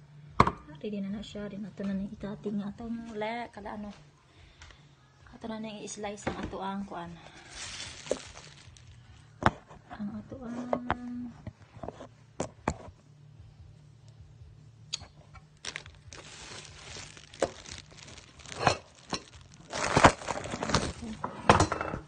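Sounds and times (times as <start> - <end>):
rustling and rubbing: 7.4 - 9.0, 15.6 - 21.2.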